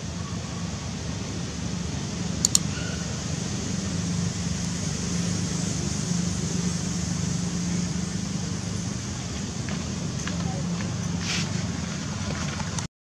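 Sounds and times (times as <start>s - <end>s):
low hum: 0.0s - 12.9s
outdoor background hiss: 0.0s - 12.9s
sharp clicks: 2.4s - 2.7s.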